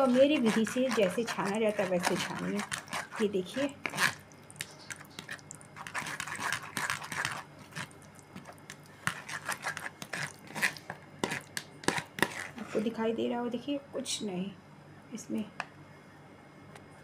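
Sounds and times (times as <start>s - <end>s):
ladle scraping fruit pulp: 0.0s - 13.0s.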